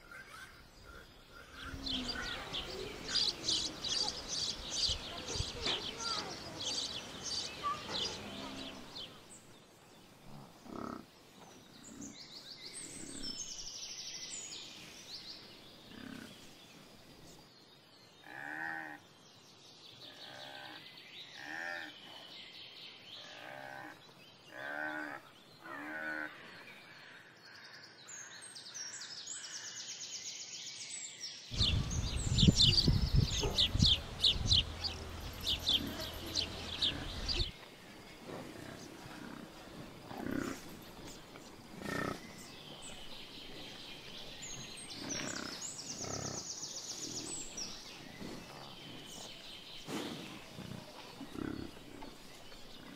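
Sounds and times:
birdsong: 0.0 - 52.9
farm animal calling: 31.7 - 37.5, 41.8 - 42.3.

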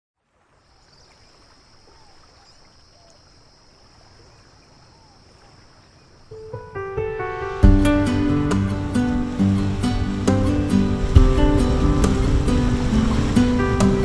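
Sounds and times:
sea water lapping: 0.2 - 14.0
faint whistling chirps: 0.6 - 3.5, 4.2 - 6.1.

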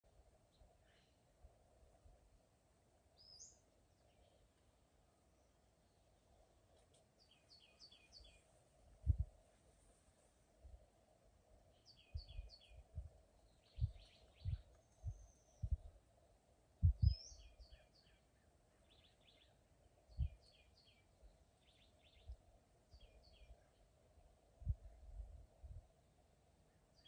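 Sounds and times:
faint steady hum: 0.0 - 27.0
small songbirds chirping: 3.0 - 9.4, 11.5 - 25.8, 26.5 - 27.0.

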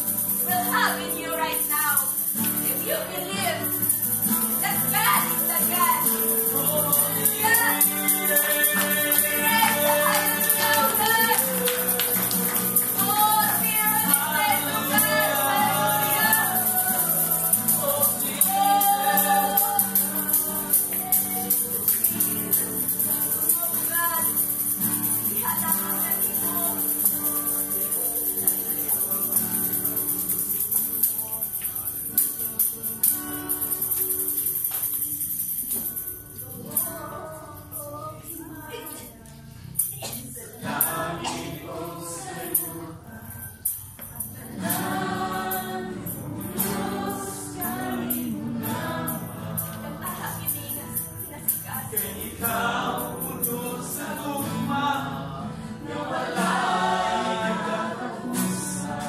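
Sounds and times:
woman singing: 0.0 - 24.5, 25.1 - 29.9, 36.4 - 54.8
guitar accompaniment: 0.0 - 59.0
tambourine shaken: 0.0 - 59.0.

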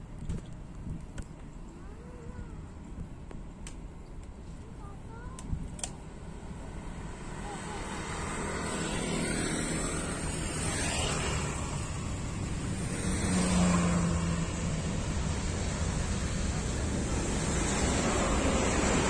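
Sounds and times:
jet engine roar: 6.0 - 19.0.

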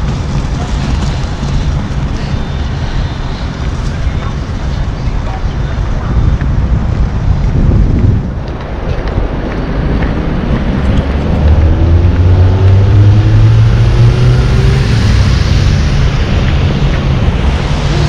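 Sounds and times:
street traffic rumble: 0.0 - 18.0
wind buffeting microphone: 0.0 - 18.0
vehicle engine accelerating: 9.3 - 18.0.

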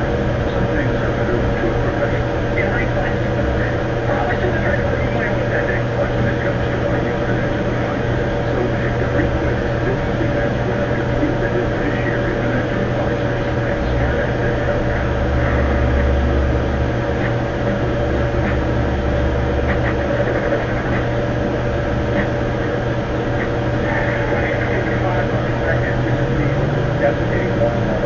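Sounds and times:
mechanical hum over hiss: 0.0 - 28.0
deep low rumble: 13.8 - 28.0.

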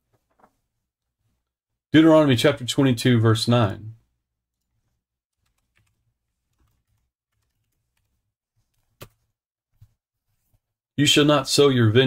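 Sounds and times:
typing on computer keyboard: 5.4 - 8.2.

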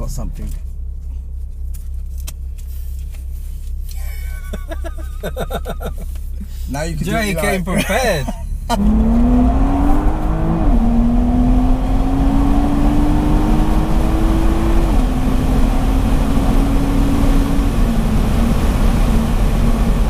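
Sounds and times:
car engine accelerating through gears: 8.6 - 20.0.

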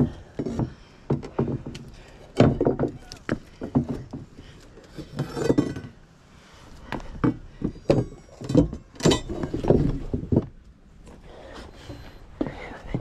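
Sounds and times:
wooden knocks and clatter: 0.0 - 6.0, 6.8 - 10.8.

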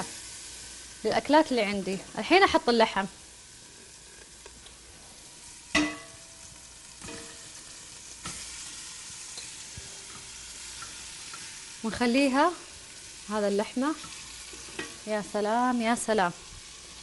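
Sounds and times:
meat sizzling in hot fat: 0.0 - 17.0
metal pot clank: 5.7 - 6.3, 7.0 - 7.6, 14.0 - 15.0.

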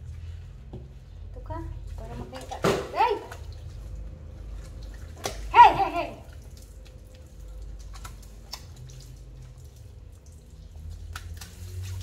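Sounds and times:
water drips and splashes: 0.0 - 12.0
faucet running thin stream: 3.3 - 12.0.

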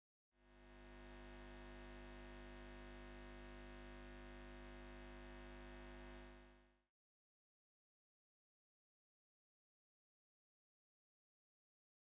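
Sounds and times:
droning hum of held tones: 0.5 - 6.7.

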